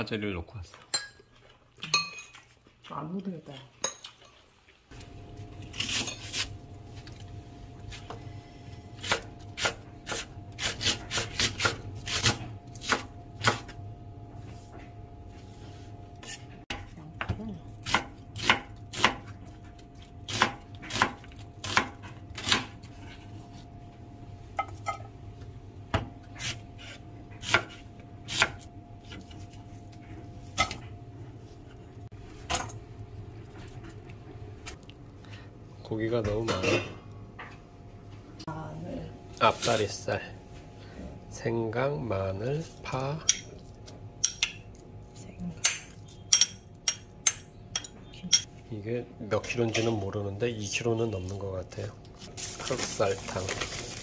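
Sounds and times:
knife chopping on wooden board: 9.0s - 13.7s, 16.7s - 19.3s, 20.3s - 22.8s, 25.9s - 29.2s.

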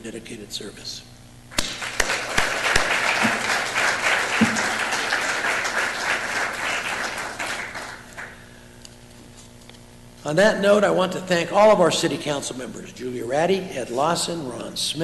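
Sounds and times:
audience applauding: 1.7s - 8.4s.

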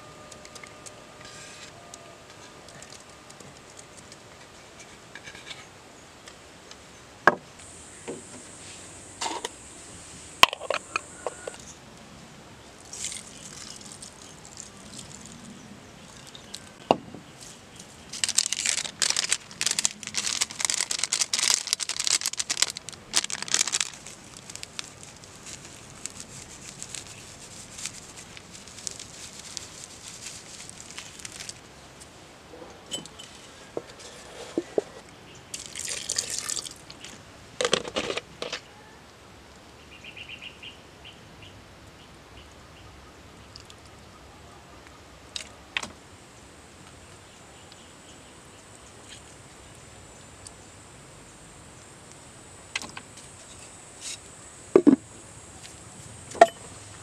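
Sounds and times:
seasoning shaken into a pot: 12.9s - 15.3s, 25.3s - 31.6s.

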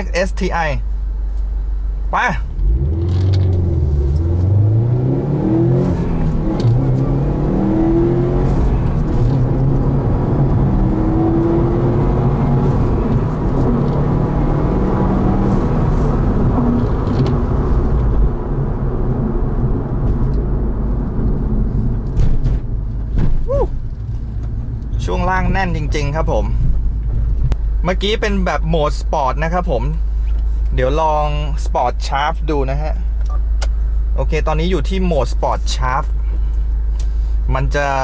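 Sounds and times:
car engine accelerating through gears: 2.4s - 27.6s.

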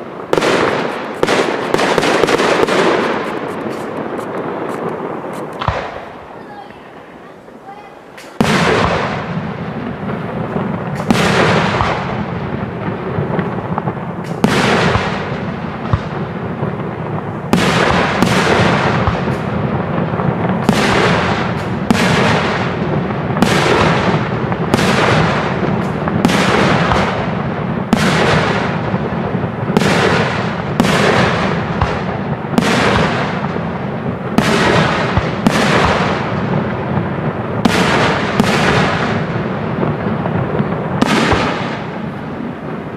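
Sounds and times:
firework shells bursting: 0.0s - 7.2s, 8.0s - 29.1s.

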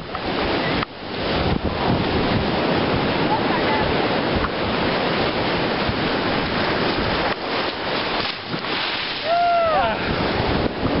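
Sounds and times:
ocean surf rushing: 0.0s - 11.0s
wind on microphone: 0.0s - 11.0s
short falling cry: 9.2s - 10.0s.

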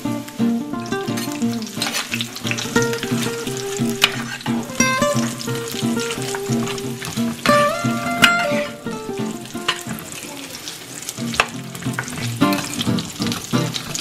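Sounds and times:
plucked melody music: 0.0s - 10.3s, 11.2s - 14.0s
meat sizzling in hot oil: 0.4s - 14.0s
spatula scraping: 1.1s - 5.4s.

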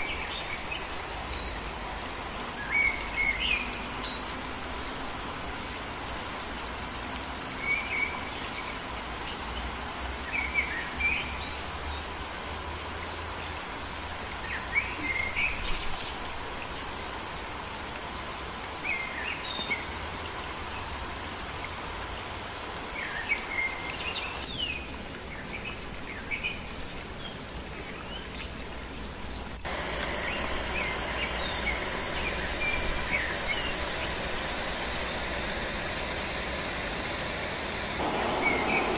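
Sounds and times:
constant hiss: 0.0s - 38.9s
insect drone: 0.0s - 38.9s
bird chirps: 38.0s - 38.9s.

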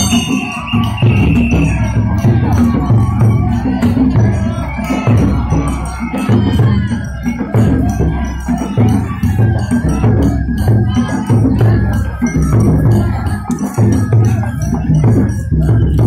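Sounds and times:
metallic jangling strikes: 0.0s - 1.5s
high melody line: 0.0s - 1.8s.

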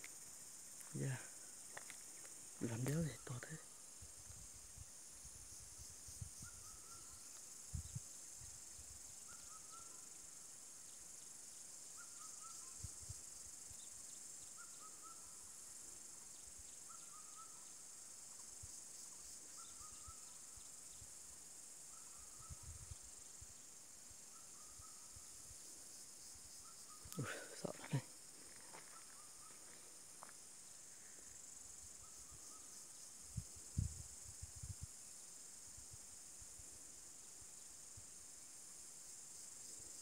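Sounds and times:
insects droning: 0.0s - 40.0s.

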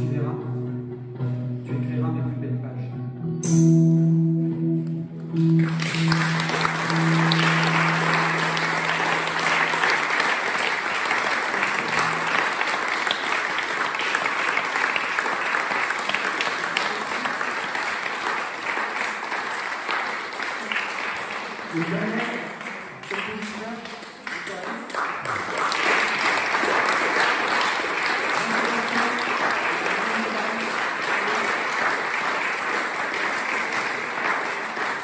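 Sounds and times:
electric guitar chord ringing: 0.0s - 10.2s
audience applauding: 5.2s - 35.0s.

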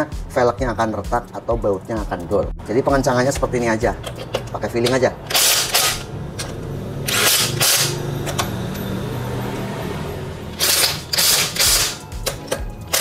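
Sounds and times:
impact wrench hammering: 3.9s - 8.8s, 10.6s - 13.0s.

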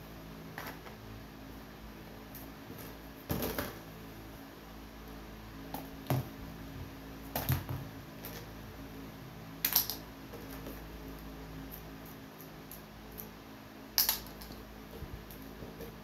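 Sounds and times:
plastic toy pieces clacking: 14.0s - 14.6s.

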